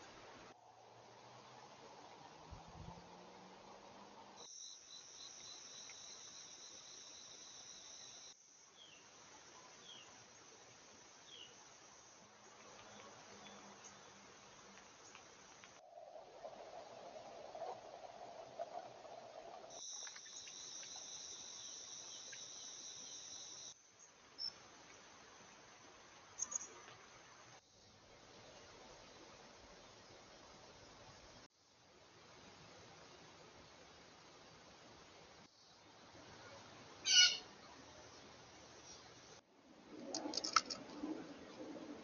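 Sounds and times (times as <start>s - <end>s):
faint hiss: 0.0s - 42.0s
pulsing insect trill: 4.4s - 9.0s, 19.1s - 23.8s
insects trilling: 4.4s - 14.2s, 15.0s - 24.6s.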